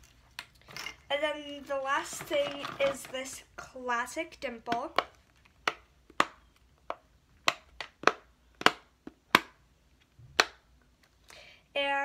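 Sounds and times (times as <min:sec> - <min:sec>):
fidget toy domes popping: 0:04.3 - 0:11.2.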